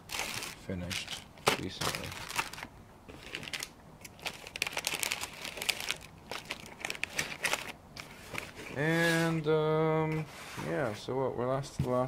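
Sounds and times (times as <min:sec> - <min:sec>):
rustling and crinkling packaging: 0:00.0 - 0:09.4.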